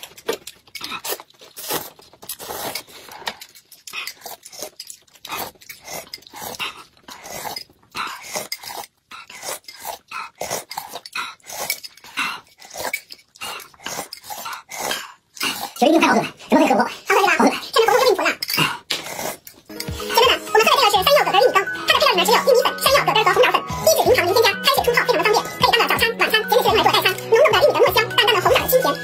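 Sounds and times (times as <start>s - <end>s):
slurping food: 0.8s - 20.6s.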